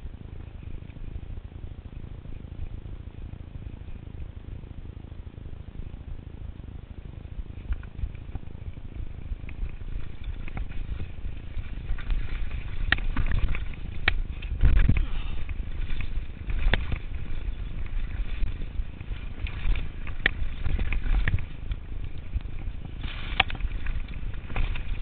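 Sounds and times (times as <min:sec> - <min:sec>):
wind and tyre rumble: 0:00.0 - 0:25.0
bike clicking and rattling: 0:07.0 - 0:25.0.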